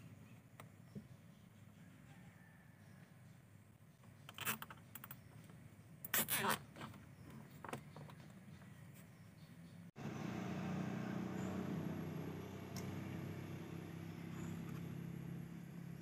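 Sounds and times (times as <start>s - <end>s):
cable tie zipping: 6.1s - 6.7s.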